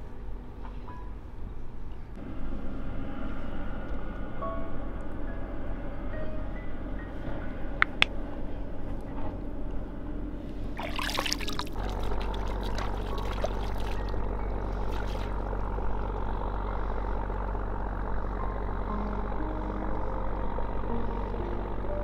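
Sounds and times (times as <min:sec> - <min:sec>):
low drone: 0:00.0 - 0:22.0
river water splashing: 0:10.7 - 0:16.7.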